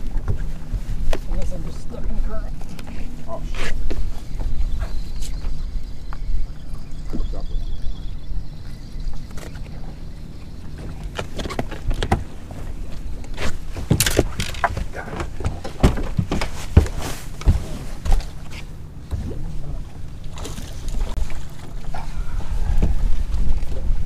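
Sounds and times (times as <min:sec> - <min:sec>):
low steady rumble: 0:00.0 - 0:24.0
water slapping against boat hull: 0:10.8 - 0:24.0.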